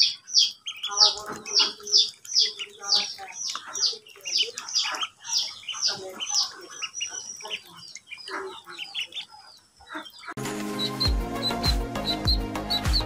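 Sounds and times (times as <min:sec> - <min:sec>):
ducklings peeping: 0:00.0 - 0:13.0
music: 0:10.4 - 0:13.0.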